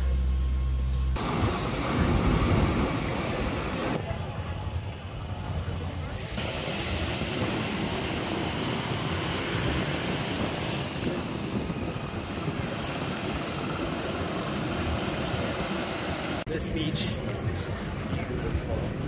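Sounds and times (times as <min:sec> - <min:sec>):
water rushing: 0:01.2 - 0:04.0, 0:06.4 - 0:16.5
wind rushing: 0:01.2 - 0:04.0, 0:06.4 - 0:16.5.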